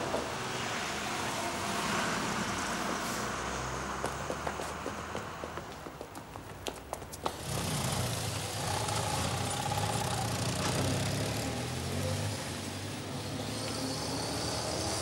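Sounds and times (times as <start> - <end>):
motorcycle and van engines passing: 0.0 - 15.0
footsteps on pavement: 3.8 - 7.4.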